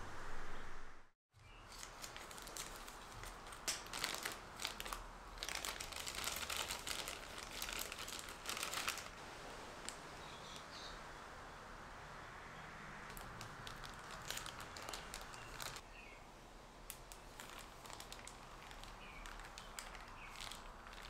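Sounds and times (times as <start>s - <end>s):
plastic bag crinkling: 1.6s - 9.2s, 13.1s - 15.8s, 16.9s - 21.0s.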